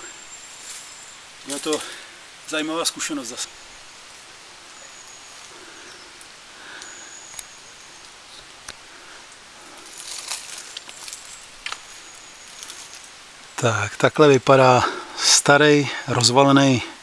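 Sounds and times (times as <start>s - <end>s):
footsteps through dry leaves: 0.0s - 2.0s, 9.6s - 13.2s
branches brushing: 0.0s - 15.1s
twigs snapping: 6.2s - 13.1s.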